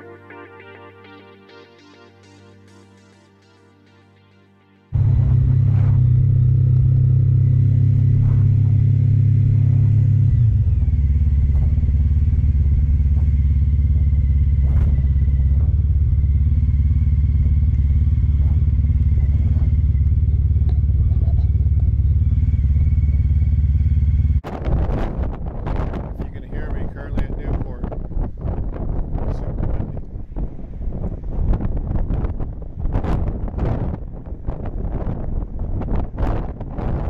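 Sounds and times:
motorcycle engine running: 0:05.0 - 0:26.6.

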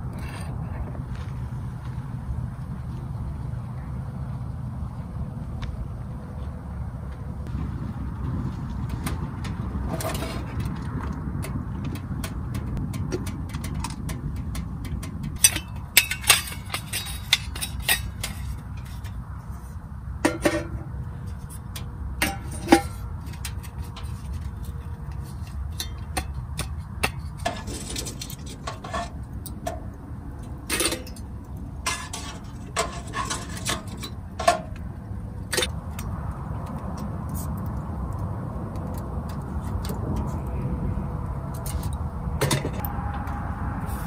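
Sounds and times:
low steady rumble: 0:00.0 - 0:44.0
metal parts clinking: 0:15.3 - 0:19.2.

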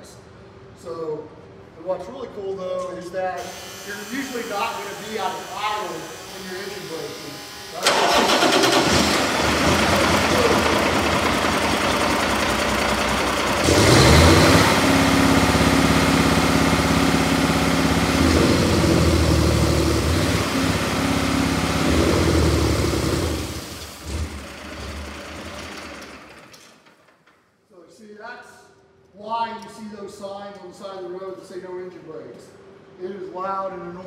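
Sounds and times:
diesel engine revving: 0:07.8 - 0:26.5.

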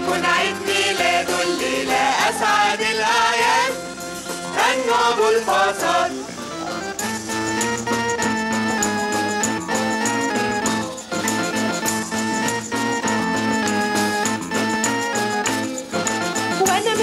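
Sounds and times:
voices singing together: 0:00.0 - 0:06.4
pop band playing: 0:00.0 - 0:17.0.

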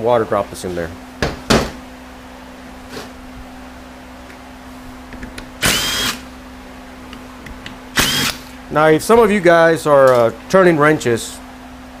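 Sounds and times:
steady low hum: 0:00.0 - 0:12.0
knock: 0:01.2 - 0:01.8
electric power tool whine: 0:05.6 - 0:06.3, 0:08.0 - 0:08.5.

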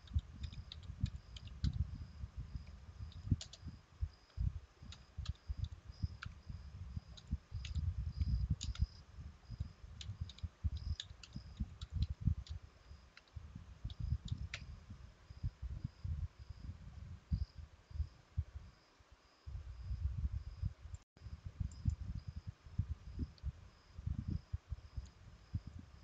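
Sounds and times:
dull low thumps: 0:00.0 - 0:18.6
faint high-pitched chirping: 0:00.0 - 0:26.0
keyboard key clicks: 0:07.6 - 0:08.9.

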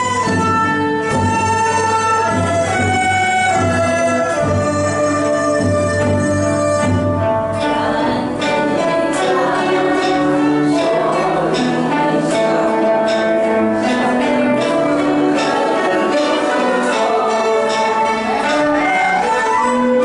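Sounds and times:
bamboo flutes: 0:00.0 - 0:08.0, 0:13.8 - 0:20.0
cello: 0:00.0 - 0:20.0
erhu: 0:00.0 - 0:20.0
sharp rhythmic notes: 0:00.0 - 0:20.0
traditional instrumental ensemble: 0:00.0 - 0:20.0.

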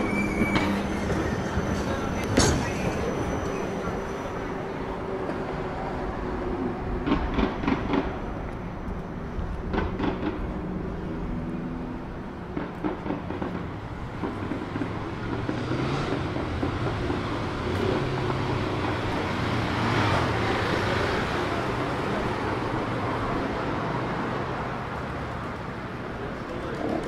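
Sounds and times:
city street traffic: 0:00.0 - 0:27.0.

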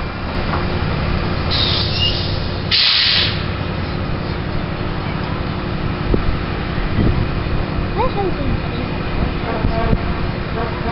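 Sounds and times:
diesel locomotive engine throbbing: 0:00.0 - 0:10.9
air brake hiss: 0:01.5 - 0:03.5.

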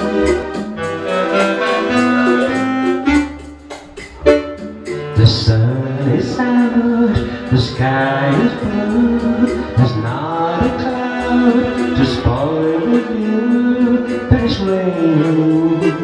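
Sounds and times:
backing music: 0:00.0 - 0:16.0
man singing through microphone: 0:05.0 - 0:16.0.

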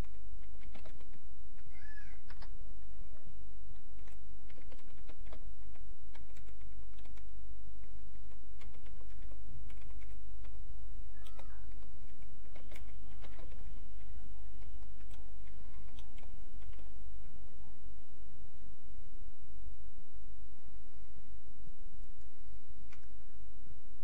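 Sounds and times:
keyboard keystrokes clicking: 0:00.0 - 0:01.2, 0:03.8 - 0:07.3, 0:08.2 - 0:10.6, 0:11.2 - 0:16.9
steady low hum: 0:00.0 - 0:24.0.

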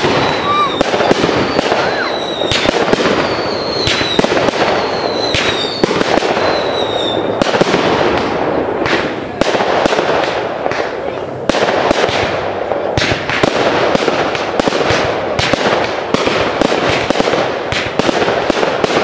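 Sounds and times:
falling firework whistles: 0:00.0 - 0:07.6
fireworks crackling and banging: 0:00.0 - 0:19.0.

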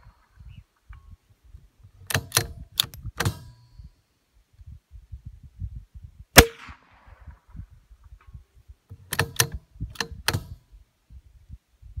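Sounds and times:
rifle bolt metallic clicks: 0:02.0 - 0:03.6, 0:09.0 - 0:10.6
gunshot ring: 0:06.4 - 0:07.5.

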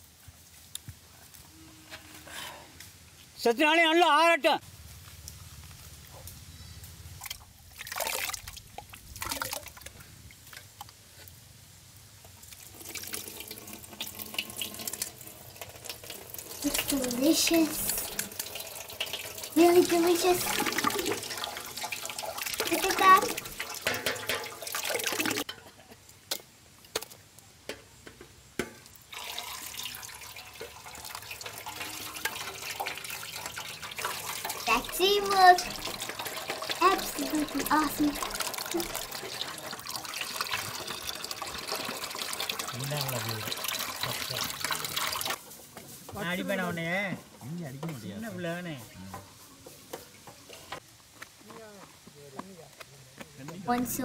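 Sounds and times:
juice splashing: 0:07.2 - 0:10.0, 0:12.4 - 0:25.5, 0:29.0 - 0:45.4
liquid trickling: 0:07.2 - 0:10.6, 0:12.4 - 0:25.5, 0:28.7 - 0:45.4
steel pots and utensils clinking: 0:12.7 - 0:26.0, 0:27.7 - 0:45.4.

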